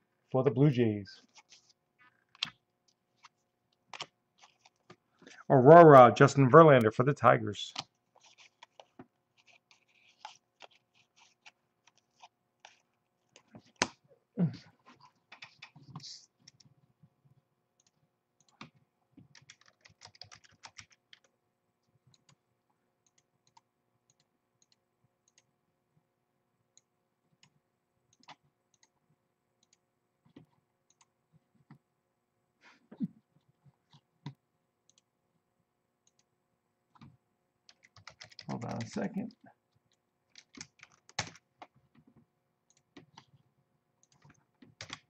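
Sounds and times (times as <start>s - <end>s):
card rustling: 8.1s - 13.9s.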